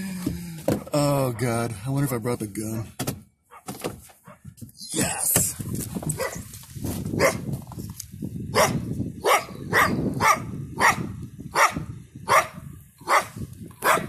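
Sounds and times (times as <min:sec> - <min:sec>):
dog barking sharply: 0:06.2 - 0:06.4, 0:07.2 - 0:07.4, 0:08.6 - 0:14.0.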